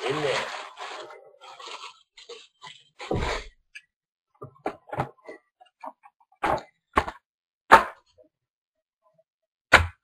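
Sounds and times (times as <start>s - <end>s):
cardboard and paper rustling: 0.0s - 3.6s.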